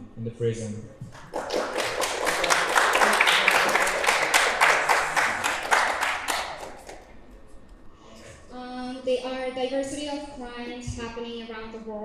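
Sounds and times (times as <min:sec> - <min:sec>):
people applauding: 0:01.1 - 0:07.3.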